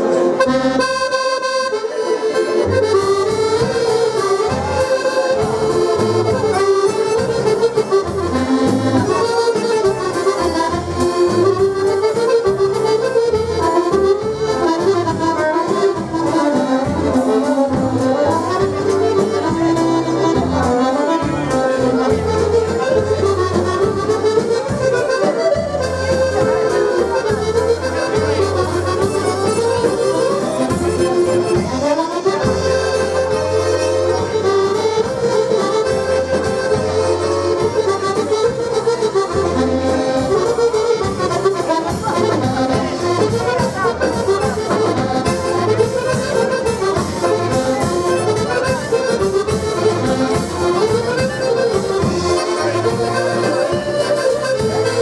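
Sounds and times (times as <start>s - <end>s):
button accordions playing a waltz: 0.0s - 55.0s.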